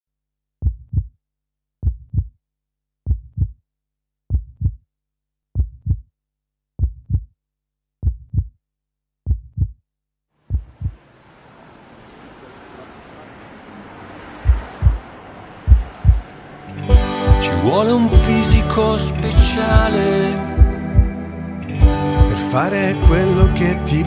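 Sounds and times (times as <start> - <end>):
heartbeat thumps: 0.6 - 1.1, 1.8 - 2.3, 3.1 - 3.6, 4.3 - 4.8, 5.6 - 6.1, 6.8 - 7.3, 8.0 - 8.6, 9.2 - 9.8, 10.5 - 11.0, 14.4 - 15.0, 15.6 - 16.3, 16.9 - 17.5, 18.2 - 18.7, 19.4 - 20.0, 20.6 - 21.2, 21.8 - 22.4, 23.0 - 23.6
soft rushing hiss: 10.8 - 16.8.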